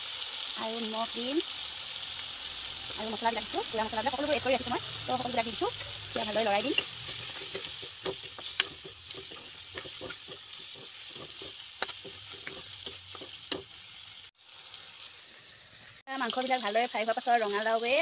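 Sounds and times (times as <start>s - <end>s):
oil sizzling in a wok: 0.0s - 18.0s
spatula scraping a pan: 4.1s - 13.9s.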